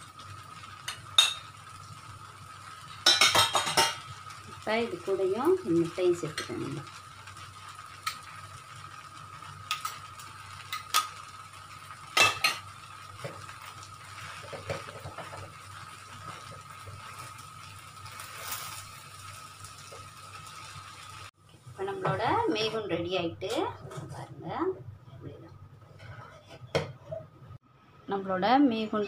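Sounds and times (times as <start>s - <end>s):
faint sizzle: 0.0s - 29.0s
spatula scraping in a wok: 12.2s - 21.3s, 25.8s - 27.3s.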